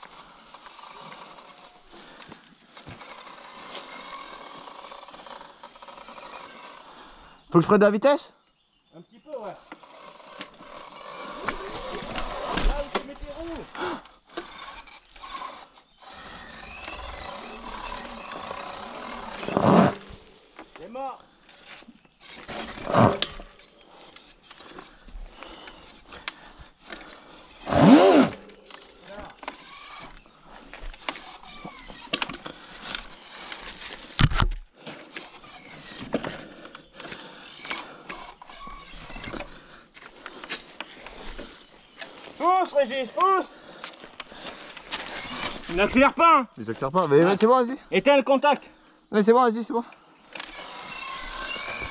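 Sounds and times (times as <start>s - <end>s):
electric motor whirring: 0.0s - 7.0s, 9.4s - 20.8s, 21.5s - 36.4s, 37.0s - 40.4s, 44.2s - 46.1s, 50.3s - 51.9s
tyres over dry leaves: 0.0s - 7.2s, 8.9s - 48.0s, 50.1s - 51.9s
bike rattling and creaking: 0.0s - 8.0s, 9.2s - 51.9s.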